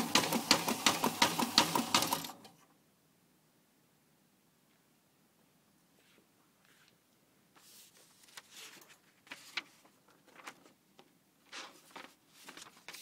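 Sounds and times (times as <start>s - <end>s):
paper rustling: 7.6s - 13.0s.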